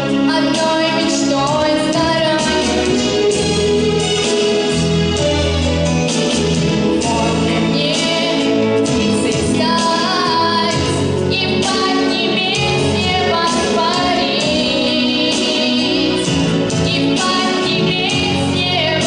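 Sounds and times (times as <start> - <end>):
instrumental backing music: 0.0 - 19.0
girl singing into microphone: 0.3 - 2.6, 7.0 - 16.2, 16.9 - 19.0.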